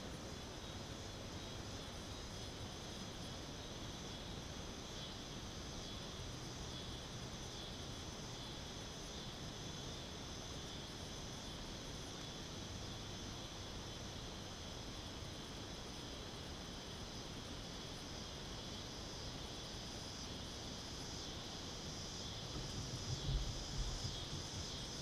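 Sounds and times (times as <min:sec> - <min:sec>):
faint background hiss: 0:00.0 - 0:25.0
insects buzzing: 0:00.0 - 0:25.0.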